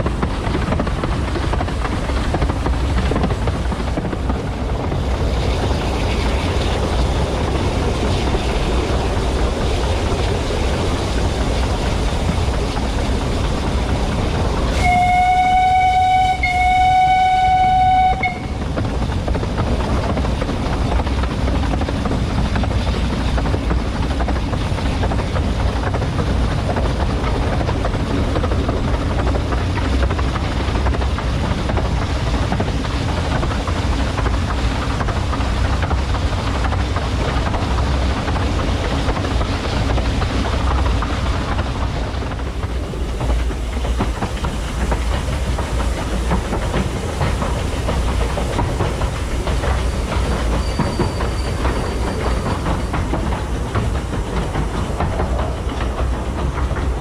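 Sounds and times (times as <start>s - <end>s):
steam train rumbling: 0.0s - 57.0s
steam whistle: 14.8s - 18.6s.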